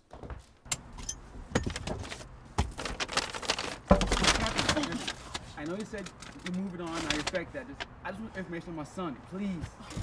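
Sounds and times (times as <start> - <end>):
clicks and rustling of handling: 1.6 - 7.9.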